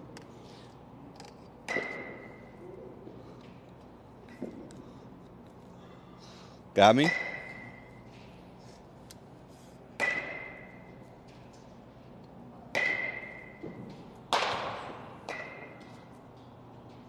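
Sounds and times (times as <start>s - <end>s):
metal bat pinging on baseball: 1.7s - 2.5s, 7.0s - 8.0s, 10.0s - 10.9s, 12.7s - 15.9s.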